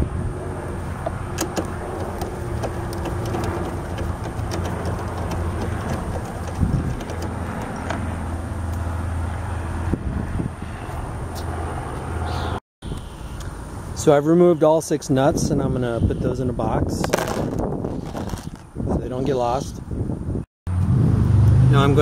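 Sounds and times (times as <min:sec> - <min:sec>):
vehicle engine humming: 0:00.0 - 0:12.5
light metallic clicks of nuts: 0:01.4 - 0:08.0.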